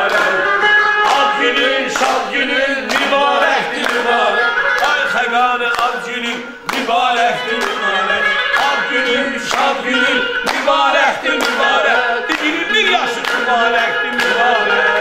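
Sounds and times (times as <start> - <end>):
held instrumental notes: 0.0 - 15.0
song with bending vocal: 0.0 - 15.0.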